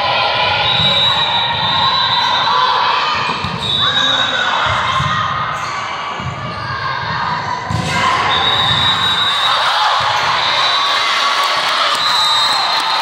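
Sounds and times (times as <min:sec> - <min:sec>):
voices echoing in gym: 0:00.0 - 0:13.0.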